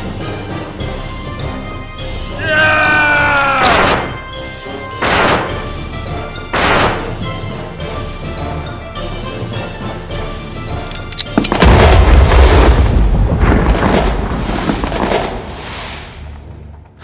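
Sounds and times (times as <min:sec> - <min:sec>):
background music: 0:00.0 - 0:13.3
sharp clicks: 0:03.3 - 0:04.0, 0:10.9 - 0:11.6
cannon explosion boom: 0:11.6 - 0:15.5.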